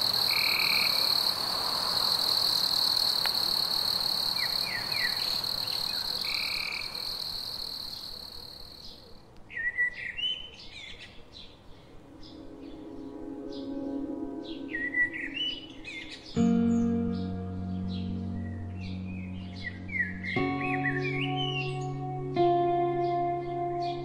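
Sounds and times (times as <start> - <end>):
frogs trilling and croaking: 0.0 - 9.2
insects trilling: 0.0 - 9.2
small birds chirping: 3.3 - 22.2
soft music: 12.0 - 24.0.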